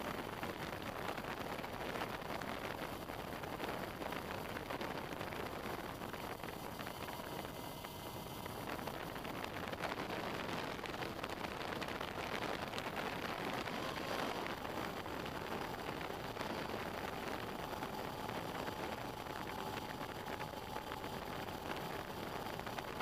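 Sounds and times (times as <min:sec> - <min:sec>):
faint motor whine: 0:00.0 - 0:23.0
wind on microphone: 0:00.0 - 0:23.0
drone motors and propellers rushing: 0:06.4 - 0:21.5.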